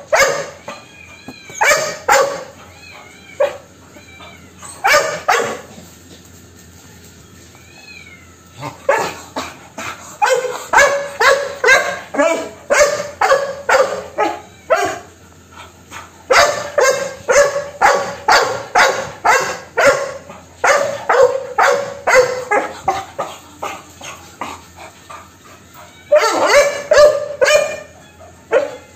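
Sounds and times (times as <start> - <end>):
dog barking: 0.0 - 0.6, 1.6 - 2.5, 4.8 - 5.7, 10.2 - 15.1, 16.3 - 23.0, 26.1 - 27.9, 28.5 - 28.8.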